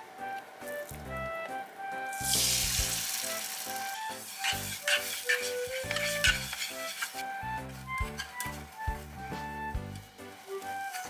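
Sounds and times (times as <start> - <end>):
egg sizzling in a pan: 2.1 - 8.8
chopsticks scraping a pan: 3.6 - 8.8, 9.9 - 11.0.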